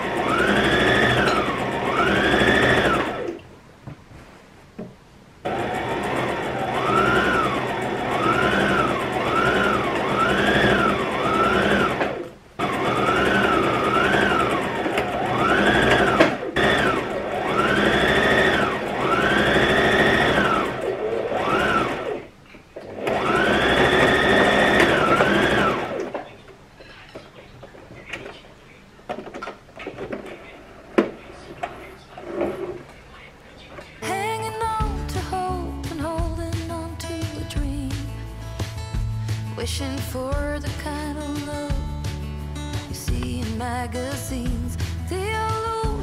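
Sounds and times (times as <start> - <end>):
electric sewing machine stitching: 0.0 - 3.4, 5.4 - 26.2.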